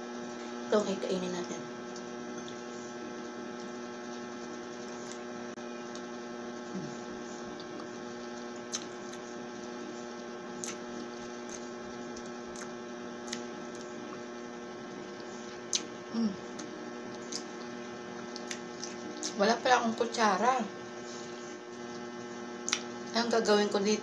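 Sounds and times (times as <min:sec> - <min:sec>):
electrical hum: 0:00.0 - 0:24.0
mouth clicks from chewing: 0:16.6 - 0:19.4.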